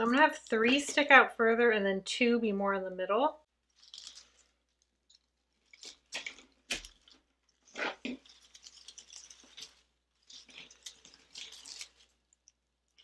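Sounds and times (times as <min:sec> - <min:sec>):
artificial leaves rustling: 0:03.6 - 0:13.0.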